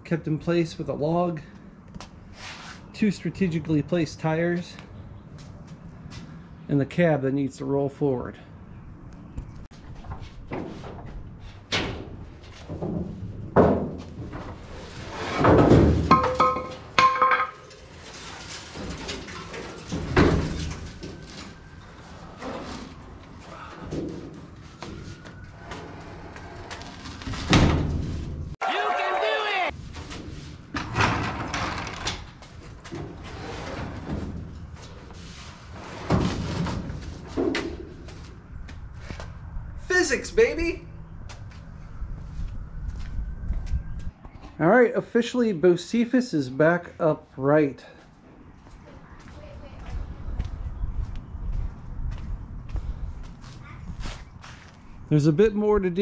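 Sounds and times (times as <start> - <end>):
sheet metal and wood thumps: 10.4 - 17.8
scraping and creaking sheet metal: 10.4 - 28.6, 29.9 - 37.9
thumps and knocks on steel: 15.4 - 17.6.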